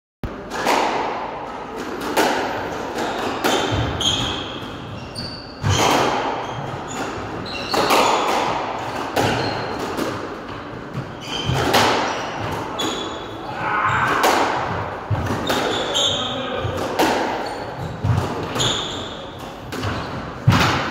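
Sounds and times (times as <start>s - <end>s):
squash ball hits echoing: 0.2s - 20.9s
shoes squeaking on wooden floor: 3.6s - 8.3s, 9.2s - 9.8s, 11.0s - 14.1s, 15.0s - 20.4s.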